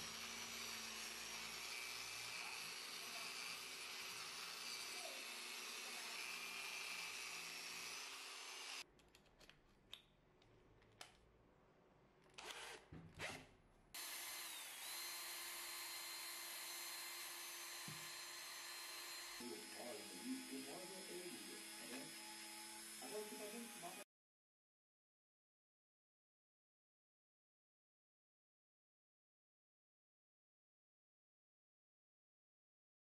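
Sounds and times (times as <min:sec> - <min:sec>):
cordless drill running: 0:00.0 - 0:08.8, 0:12.4 - 0:13.4, 0:14.0 - 0:24.1.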